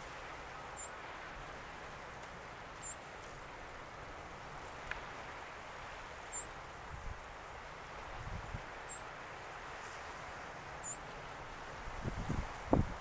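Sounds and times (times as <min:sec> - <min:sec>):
choppy water: 0:00.0 - 0:13.0
wind: 0:00.0 - 0:13.0
small bird chirps: 0:02.8 - 0:03.0, 0:10.8 - 0:11.0.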